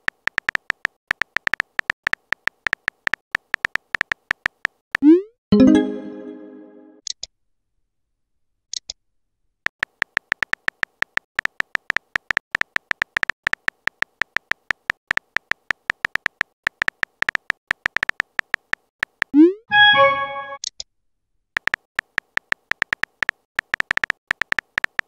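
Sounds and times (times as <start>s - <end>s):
rising swoop and chime: 5.6s - 7.0s, 19.7s - 20.6s
keyboard tapping clicks with beeps: 19.3s - 20.7s.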